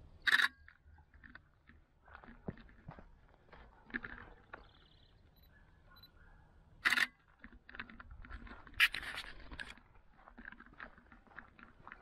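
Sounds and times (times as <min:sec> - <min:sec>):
footsteps on gravel: 0:01.1 - 0:05.1, 0:07.2 - 0:12.0.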